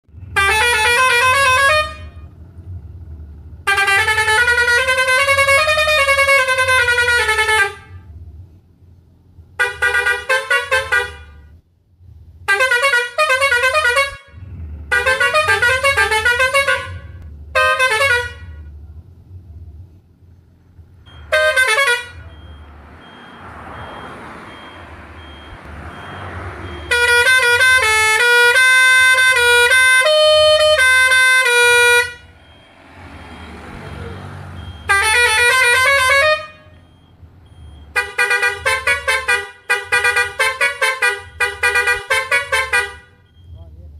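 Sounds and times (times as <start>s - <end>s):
low steady rumble: 0.1s - 30.9s
bus musical horn: 0.2s - 2.4s, 3.6s - 8.1s, 9.6s - 11.6s, 12.4s - 18.8s, 21.1s - 22.4s, 23.5s - 32.4s, 33.4s - 36.9s, 37.9s - 43.3s.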